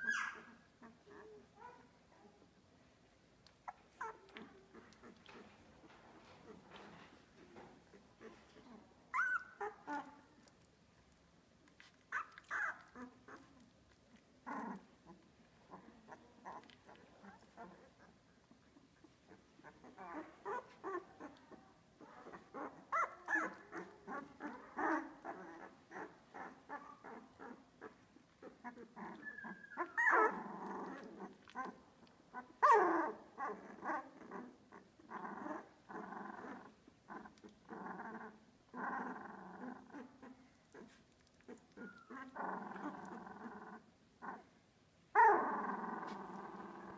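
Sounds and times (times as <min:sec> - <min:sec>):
puppy squeals: 0:00.0 - 0:01.8, 0:09.1 - 0:10.1, 0:29.0 - 0:31.0
puppies grunting and whimpering: 0:00.0 - 0:02.4, 0:03.6 - 0:10.6, 0:11.8 - 0:44.6, 0:45.2 - 0:46.9.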